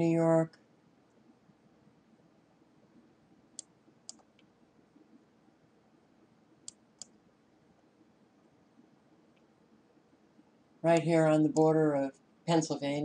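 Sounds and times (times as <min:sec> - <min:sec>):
computer mouse clicking: 0:03.5 - 0:04.5, 0:06.6 - 0:07.2.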